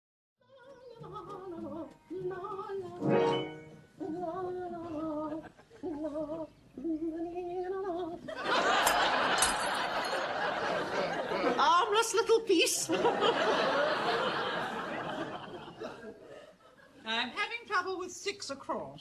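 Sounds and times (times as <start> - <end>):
audience laughter: 8.3 - 11.7, 12.9 - 17.0.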